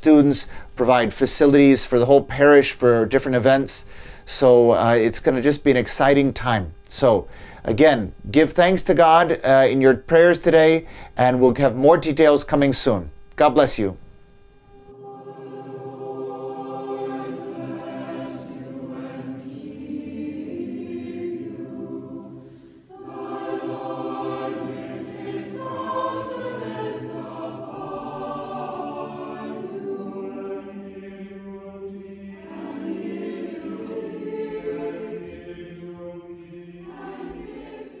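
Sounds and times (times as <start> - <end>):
choir singing sustained lines: 14.8 - 38.0.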